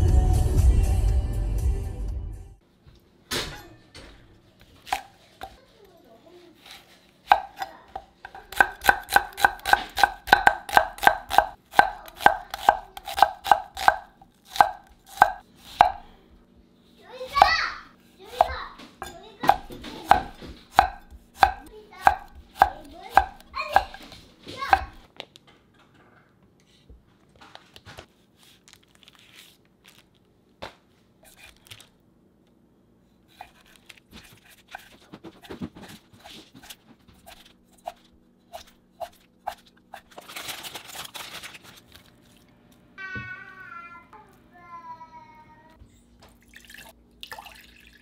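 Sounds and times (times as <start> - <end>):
knife chopping on cutting board: 4.8 - 5.6, 6.6 - 16.1, 18.4 - 25.0, 33.3 - 40.1.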